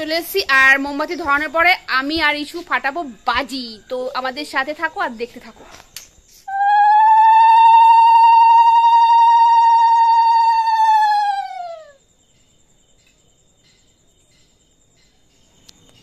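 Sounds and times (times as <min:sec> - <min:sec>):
conch shell blown: 0:06.5 - 0:10.5.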